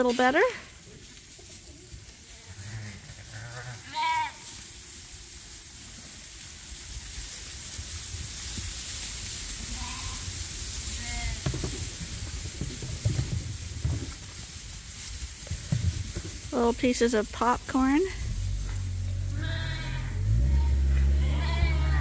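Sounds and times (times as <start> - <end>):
rustle on straw: 0.0 - 22.0
lambs bleating: 2.4 - 4.5, 9.6 - 10.3, 10.9 - 11.5, 19.2 - 22.0.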